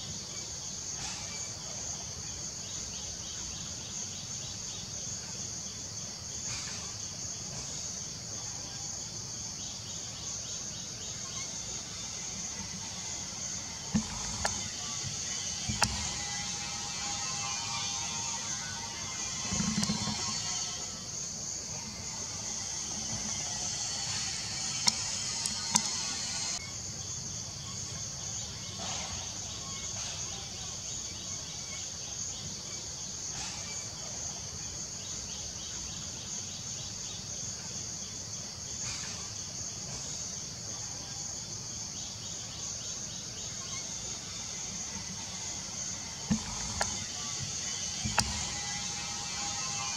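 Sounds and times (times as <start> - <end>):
insect chorus drone: 0.0 - 49.9
sharp clicks: 24.8 - 26.6.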